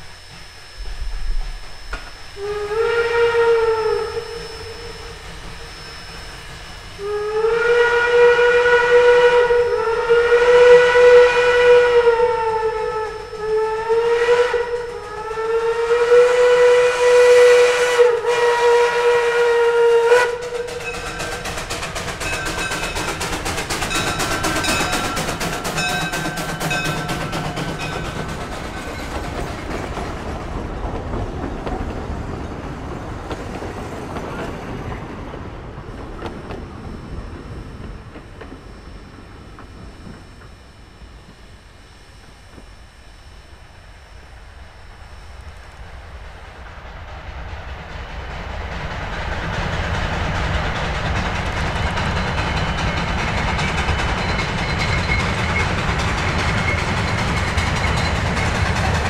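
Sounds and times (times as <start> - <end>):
steam locomotive whistle blasts: 0.0 - 28.3
steam train clattering past: 3.9 - 41.4, 45.4 - 59.0.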